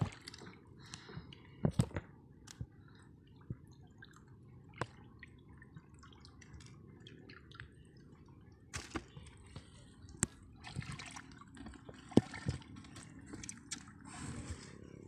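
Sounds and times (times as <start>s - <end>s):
water dripping and splashing: 8.7s - 14.0s.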